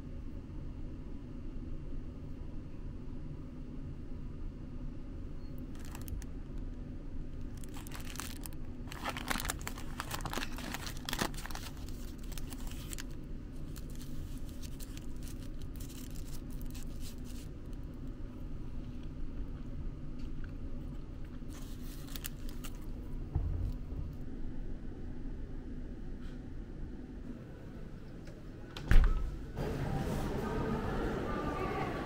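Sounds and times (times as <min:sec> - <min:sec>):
steady low hum: 0:00.0 - 0:32.0
plastic wrapper crinkling: 0:05.7 - 0:06.3, 0:07.4 - 0:17.9, 0:21.4 - 0:22.9.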